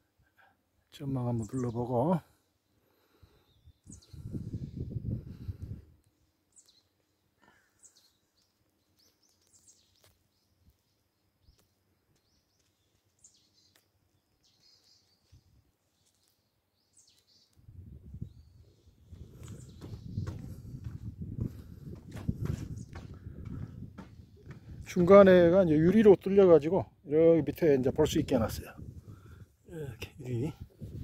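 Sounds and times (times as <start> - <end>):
faint bird chirps: 1.3 - 5.0, 6.5 - 20.7.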